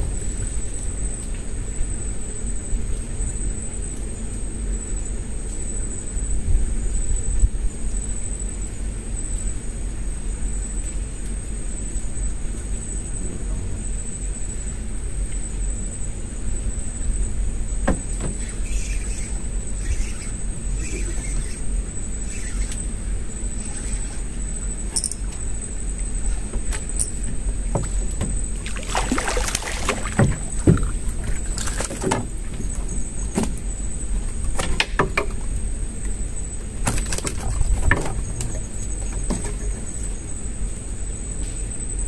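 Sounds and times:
low hum: 0.0s - 41.3s
knocks on wooden boat: 27.7s - 32.7s.

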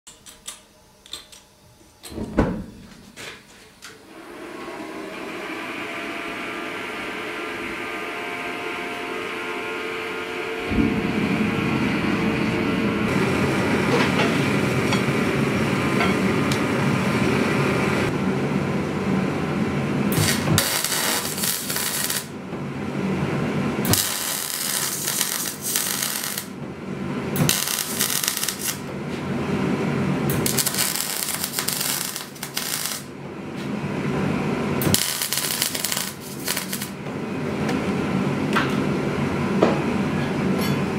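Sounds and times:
gas forge burner humming: 0.1s - 40.9s
electric arc welding crackling: 20.1s - 22.4s, 23.8s - 26.6s, 27.4s - 28.9s, 30.3s - 33.1s, 34.8s - 37.0s.

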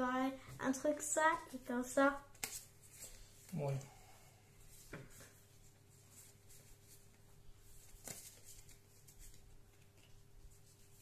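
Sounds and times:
trading cards rustling: 6.1s - 11.0s.

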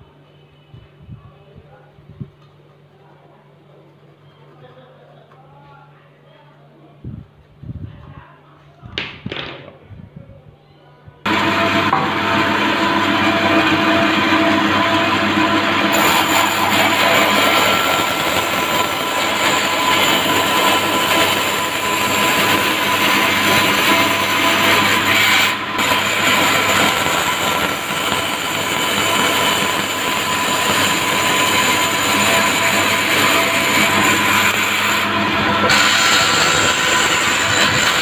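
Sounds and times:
bandsaw cutting wood: 11.3s - 38.0s
hiss of saw cut: 11.3s - 38.0s.

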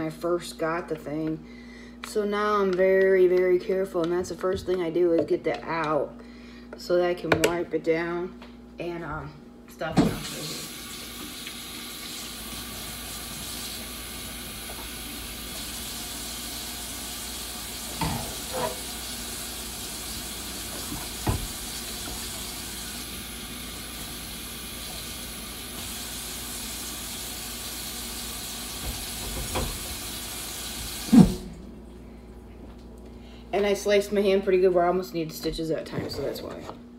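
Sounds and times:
tap water running into sink: 10.0s - 31.5s.

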